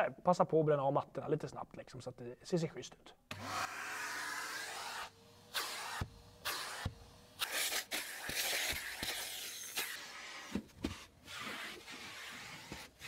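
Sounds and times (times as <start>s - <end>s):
vacuum cleaner suction hiss: 3.4s - 10.6s.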